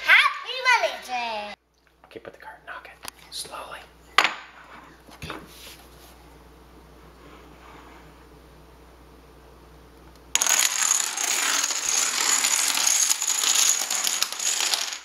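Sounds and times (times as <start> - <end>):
dominoes toppling on wooden floor: 10.3 - 15.0.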